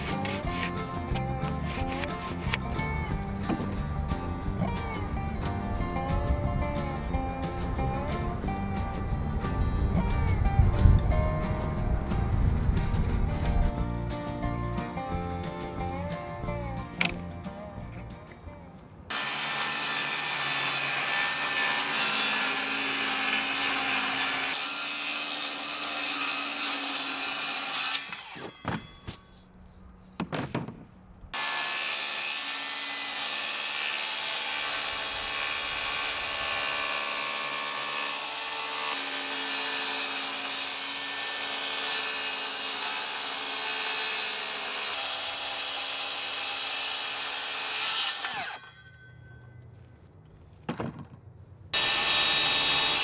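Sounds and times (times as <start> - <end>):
power saw cutting plywood: 0.0 - 3.9, 19.1 - 28.9, 31.4 - 48.7, 51.8 - 53.0.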